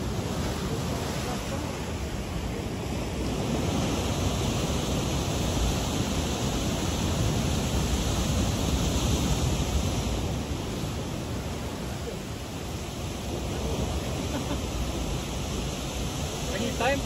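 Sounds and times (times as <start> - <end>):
surf breaking on rocks: 0.0 - 17.0.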